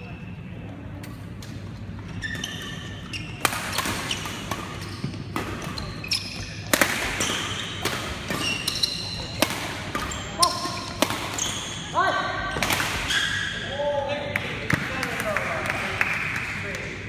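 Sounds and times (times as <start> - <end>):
shoes squeaking on court floor: 1.8 - 11.9, 13.0 - 13.6
racket striking shuttlecock: 6.6 - 11.4.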